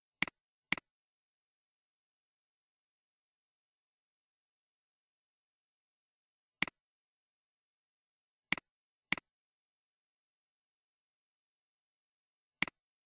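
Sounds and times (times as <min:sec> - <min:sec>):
computer mouse clicks: 0:00.2 - 0:00.9, 0:08.5 - 0:09.3.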